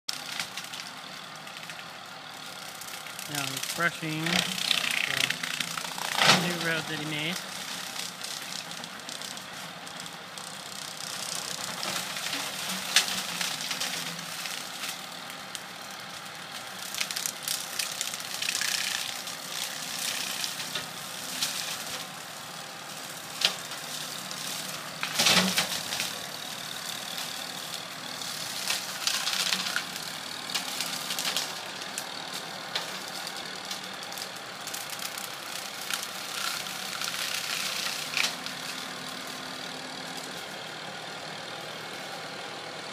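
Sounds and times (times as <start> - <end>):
tractor engine running: 0.1 - 42.9
branches cracking and snapping: 4.4 - 22.1, 22.8 - 39.4.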